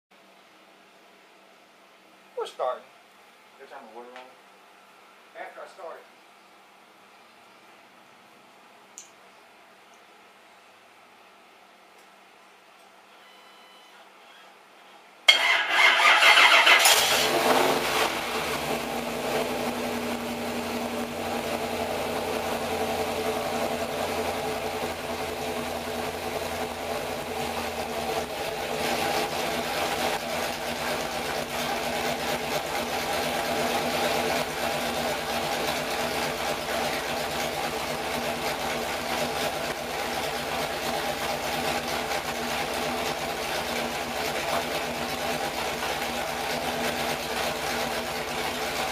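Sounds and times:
car engine starting and idling: 15.3s - 48.9s.

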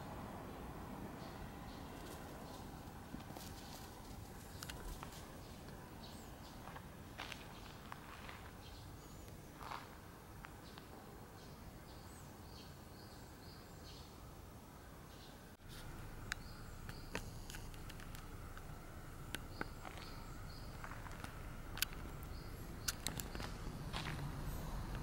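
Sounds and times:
sharp clicks: 21.0s - 23.7s.

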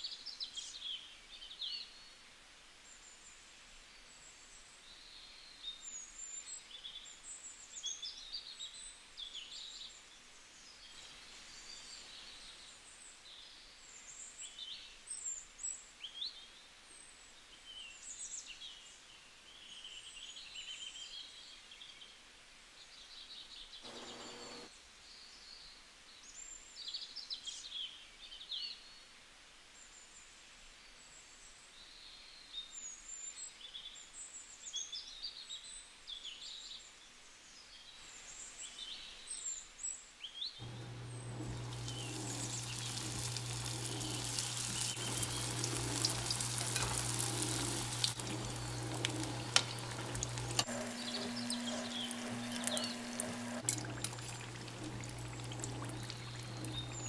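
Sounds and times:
small birds chirping: 23.9s - 24.7s, 40.6s - 57.0s
deep-frying sizzle with pops: 40.6s - 57.0s.

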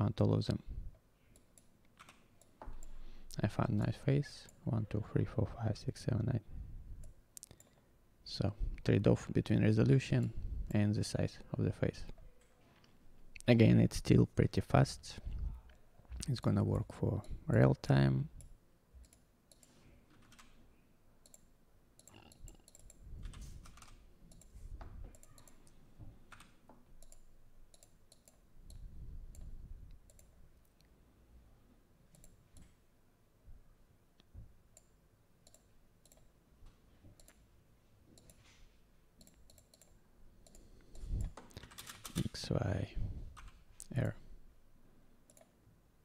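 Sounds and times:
computer mouse clicks: 18.4s - 20.6s, 21.2s - 30.4s, 32.1s - 32.8s, 34.7s - 36.3s, 37.2s - 37.4s, 38.2s - 38.4s, 39.2s - 42.2s, 45.3s - 45.5s.

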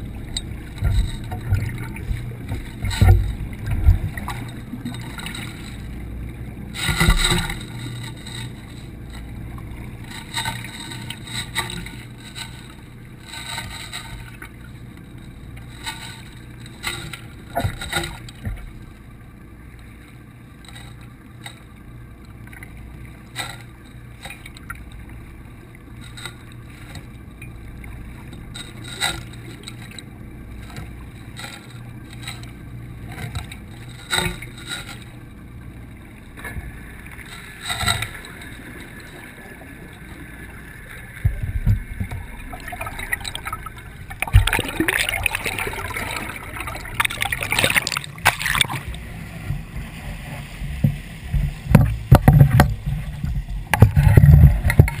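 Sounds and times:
rushing and splashing water: 0.0s - 18.8s, 22.4s - 55.0s
muffled underwater hum: 0.0s - 55.0s.

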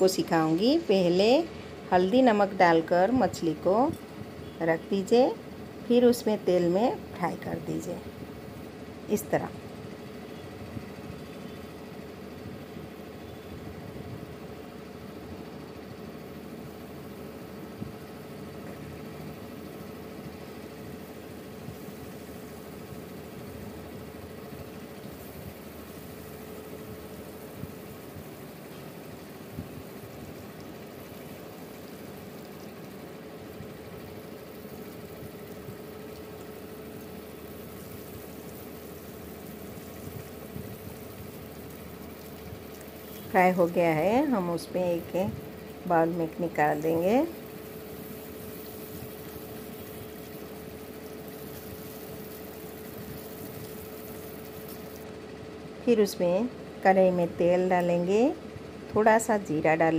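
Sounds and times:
fish frying in hot oil: 9.7s - 55.1s.

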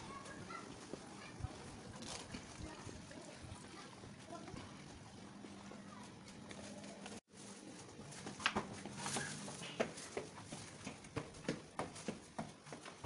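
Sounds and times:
footsteps on tiled stairs: 5.4s - 13.0s.

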